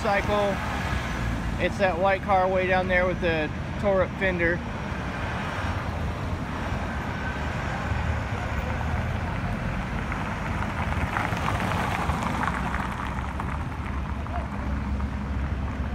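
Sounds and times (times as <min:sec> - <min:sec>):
truck engine rumble: 0:00.0 - 0:15.9
car passing: 0:04.4 - 0:15.9.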